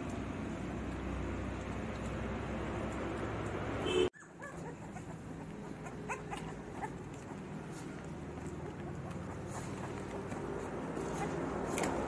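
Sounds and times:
puppies whimpering: 0:04.2 - 0:12.0.

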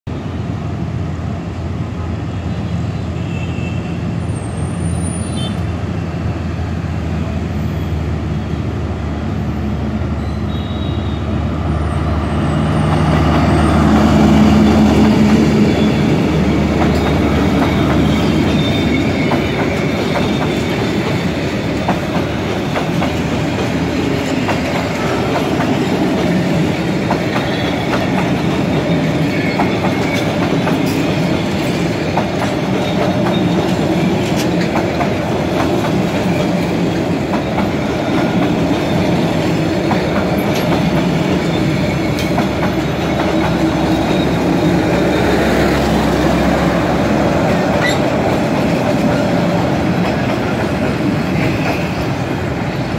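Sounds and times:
locomotive engine humming: 0:05.6 - 0:52.9
train wheels clicking over rails: 0:12.6 - 0:52.9.

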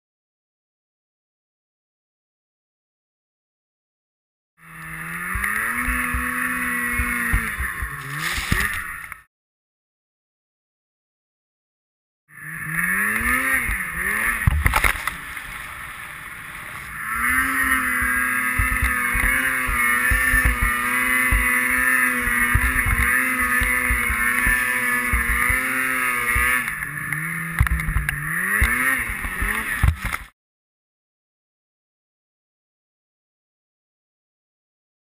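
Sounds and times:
snowmobile engine revving: 0:04.6 - 0:09.3, 0:12.3 - 0:30.3
low thumps: 0:05.2 - 0:08.9, 0:13.6 - 0:15.5, 0:17.2 - 0:26.8.

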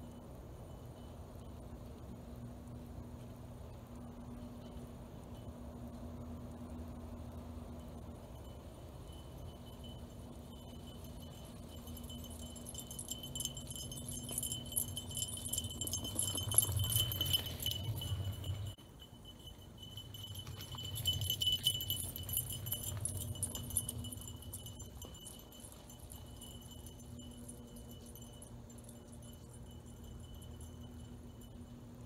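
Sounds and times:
rumble of tyres and paws: 0:02.4 - 0:32.0
metallic jingling and rattling: 0:08.4 - 0:32.0.

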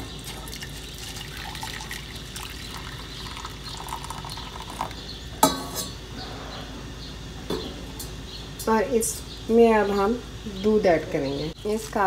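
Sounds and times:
tea pouring into saucepan: 0:00.2 - 0:05.0.

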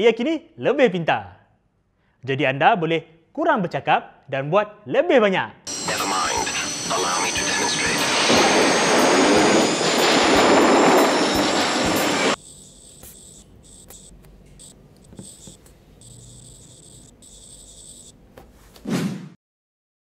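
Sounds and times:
stylus scratching on glass: 0:12.4 - 0:18.1.

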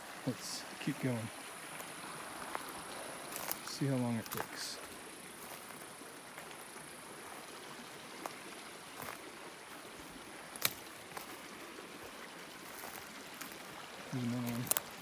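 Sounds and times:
faint steady hiss: 0:00.0 - 0:15.0
footsteps on forest litter: 0:01.7 - 0:15.0
twigs snapping: 0:03.3 - 0:04.5, 0:10.5 - 0:11.4, 0:14.4 - 0:15.0.

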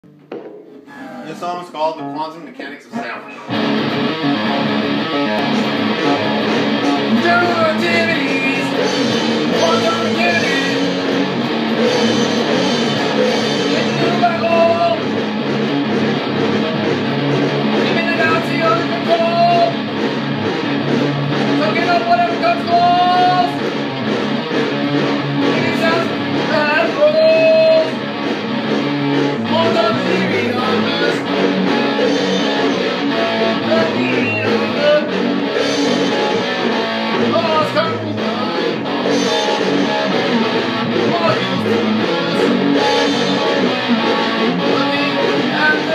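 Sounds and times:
rock guitar playing: 0:02.9 - 0:45.9
person singing: 0:05.4 - 0:11.0, 0:29.4 - 0:45.9.

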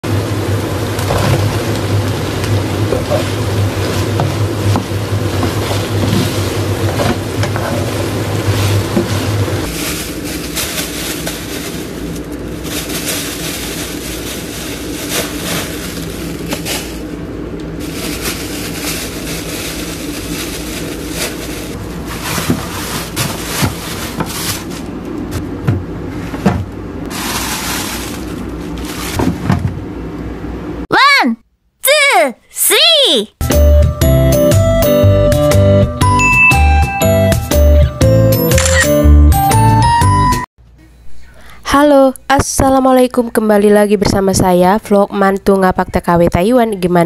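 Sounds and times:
plastic bags rustling: 0:01.1 - 0:25.4, 0:27.0 - 0:29.6.

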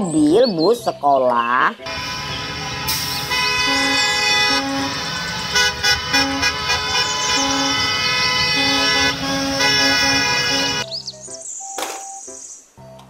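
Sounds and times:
bus horns honking: 0:01.8 - 0:10.9.

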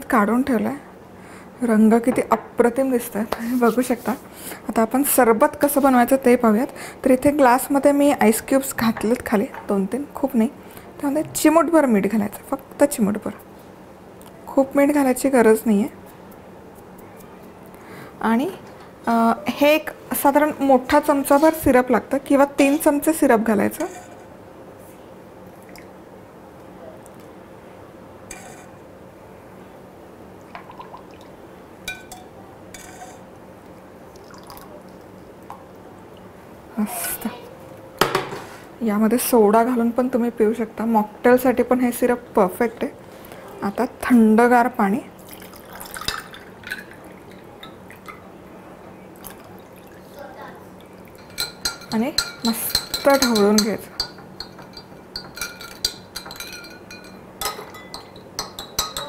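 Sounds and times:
syrup dripping and pouring: 0:45.2 - 0:48.2
ladle clinking on glass and ice: 0:51.2 - 0:59.0.

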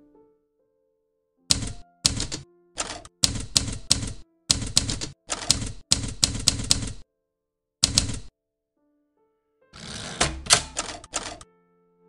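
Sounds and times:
typewriter keys clacking: 0:01.5 - 0:07.0, 0:07.8 - 0:08.3, 0:09.8 - 0:11.4.

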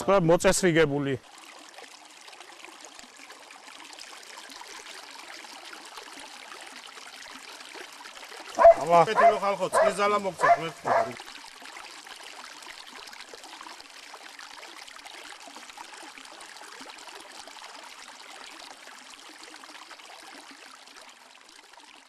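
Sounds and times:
stream water rushing: 0:04.0 - 0:19.1.

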